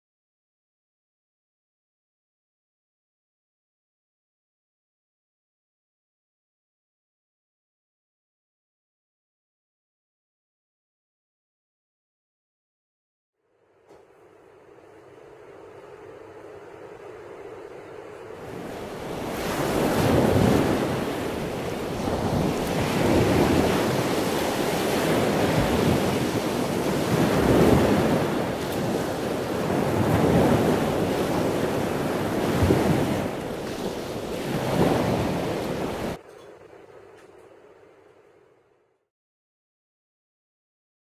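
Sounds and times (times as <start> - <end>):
sea waves washing in: 15.9 - 36.2.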